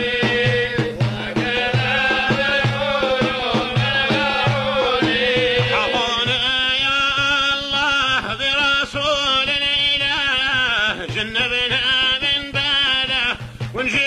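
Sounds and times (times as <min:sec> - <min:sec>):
steady low beat: 0:00.0 - 0:06.5
man chanting solo: 0:05.6 - 0:07.6.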